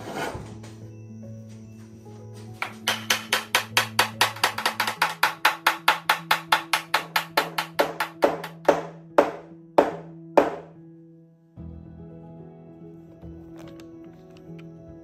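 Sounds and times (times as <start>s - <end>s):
background music: 0.0s - 15.0s
mallet tapping wood: 2.6s - 10.7s.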